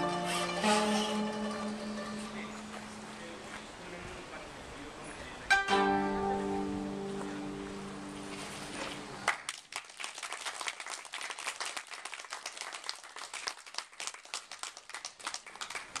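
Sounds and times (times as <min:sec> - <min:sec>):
koto ensemble chord: 0:00.0 - 0:03.4, 0:05.5 - 0:08.8
audience applause: 0:09.2 - 0:16.0.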